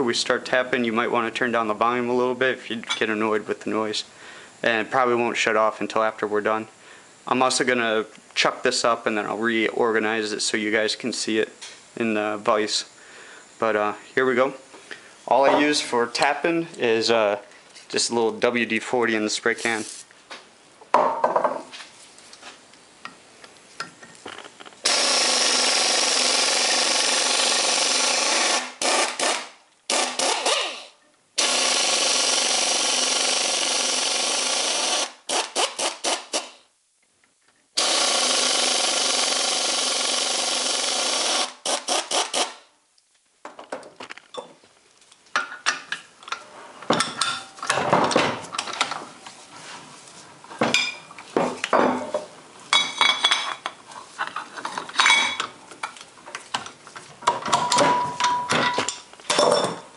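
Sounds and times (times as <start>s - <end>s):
air impact wrench running: 24.8s - 36.6s, 37.8s - 42.6s
metal parts clanking on bench: 57.2s - 59.9s.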